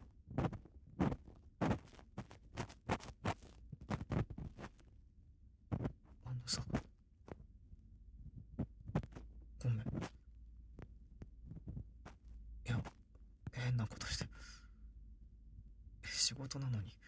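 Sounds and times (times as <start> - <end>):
rubbing and scratching on microphone: 0.0 - 5.0, 5.7 - 7.5, 8.2 - 14.2.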